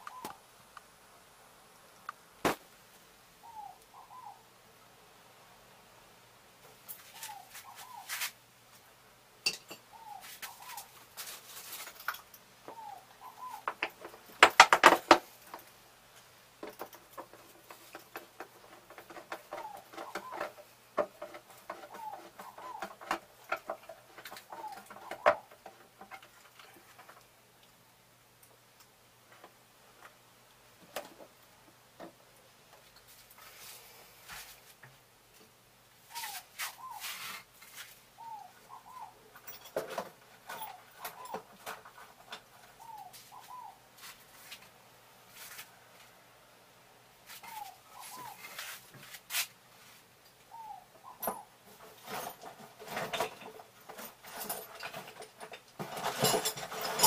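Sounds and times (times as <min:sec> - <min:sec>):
bird chirping: 0:00.0 - 0:00.4, 0:03.4 - 0:04.5, 0:07.0 - 0:08.2, 0:09.5 - 0:11.0, 0:12.6 - 0:14.0, 0:19.1 - 0:23.2, 0:24.3 - 0:25.6, 0:36.0 - 0:37.2, 0:38.2 - 0:39.4, 0:42.7 - 0:43.9, 0:47.4 - 0:48.6, 0:50.5 - 0:51.6
clinks of wire being handled: 0:09.4 - 0:09.9.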